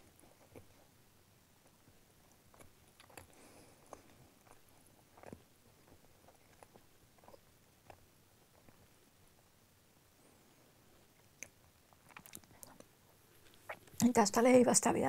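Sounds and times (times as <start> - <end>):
crunching of cracker being chewed: 1.8 - 9.5, 11.1 - 14.0.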